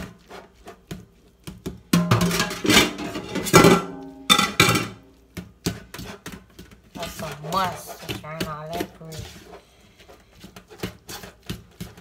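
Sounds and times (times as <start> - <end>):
fork scraping a metal colander: 0.0 - 0.8, 5.7 - 12.0.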